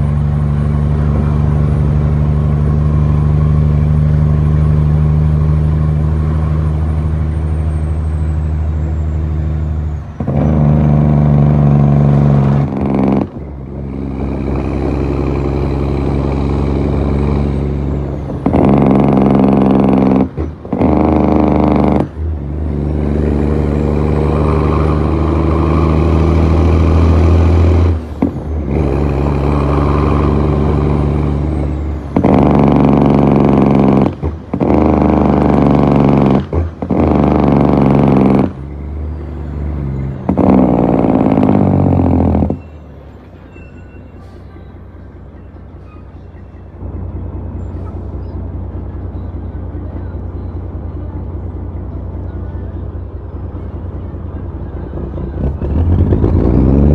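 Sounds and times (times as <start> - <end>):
diesel truck engine under load: 0.0 - 56.9
faint high whistle: 42.6 - 46.7.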